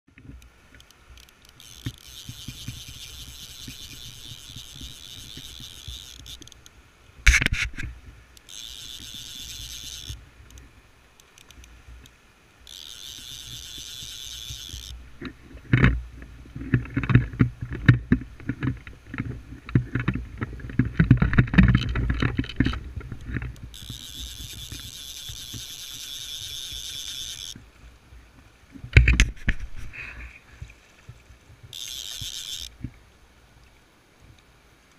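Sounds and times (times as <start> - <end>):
fly reel clicking: 0.3 - 6.7, 7.3 - 10.6, 11.2 - 15.0, 23.5 - 27.6, 31.7 - 32.8.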